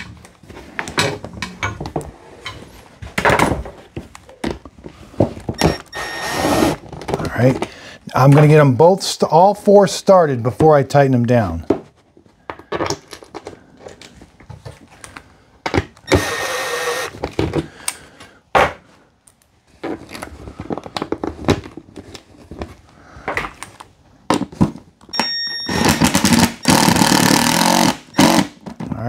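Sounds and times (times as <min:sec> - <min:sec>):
cordless drill whining: 0:05.6 - 0:06.8, 0:16.1 - 0:17.2, 0:26.6 - 0:28.5.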